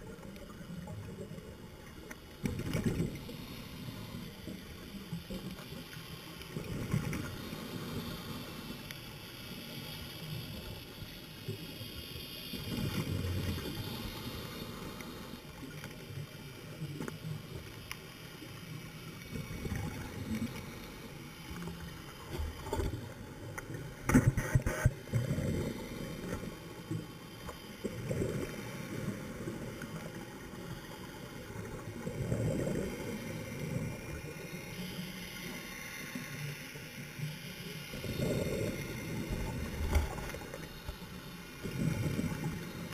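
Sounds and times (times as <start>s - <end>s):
steady underwater hiss: 0.0s - 42.9s
underwater bubbles rumbling: 38.0s - 42.9s.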